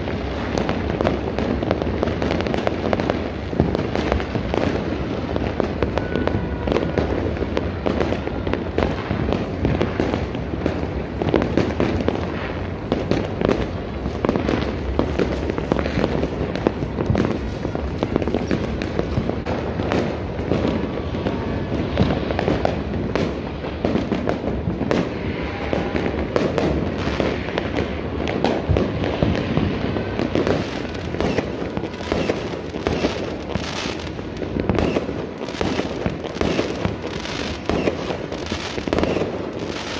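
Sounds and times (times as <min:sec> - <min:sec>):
fireworks and firecrackers banging: 0:00.0 - 0:39.9.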